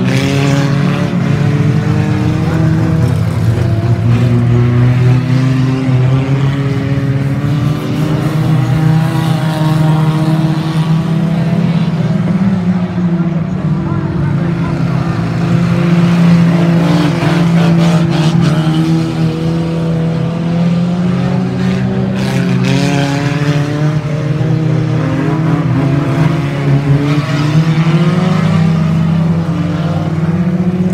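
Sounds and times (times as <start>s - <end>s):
race car engines passing: 0.0s - 30.9s.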